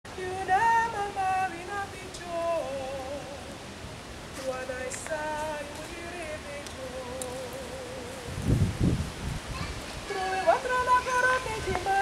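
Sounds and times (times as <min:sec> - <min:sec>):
woman singing unaccompanied: 0:00.1 - 0:03.7, 0:04.3 - 0:08.5, 0:10.0 - 0:12.0.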